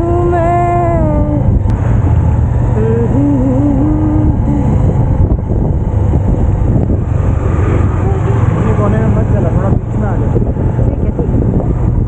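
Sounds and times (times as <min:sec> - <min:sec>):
person singing: 0:00.0 - 0:01.5, 0:02.8 - 0:04.8
motorcycle engine rumble: 0:00.0 - 0:12.0
wind on microphone: 0:00.0 - 0:12.0.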